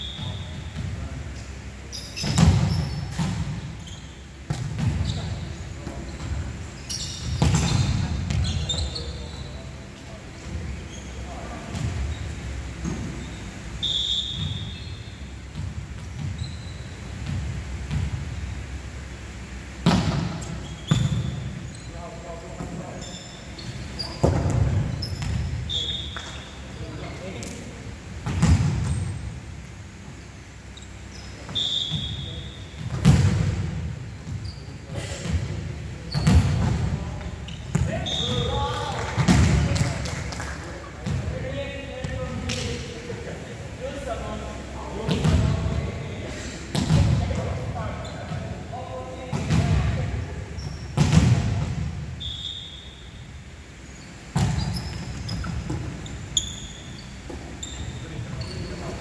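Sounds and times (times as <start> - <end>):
sneakers squeaking on wooden court: 0.0 - 18.7, 19.8 - 27.6, 28.2 - 29.3, 30.3 - 40.1, 45.0 - 59.0
brief high squeak: 6.8 - 9.6, 54.0 - 58.9.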